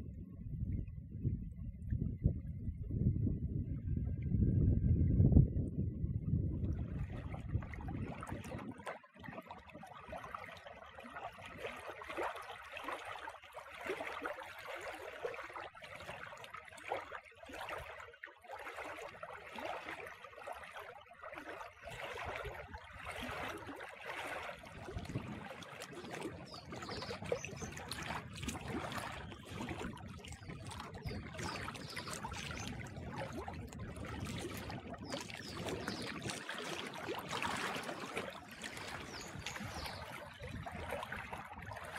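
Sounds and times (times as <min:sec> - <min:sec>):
low rumble: 0:00.0 - 0:07.2
waves lapping against rocks: 0:21.8 - 0:41.9.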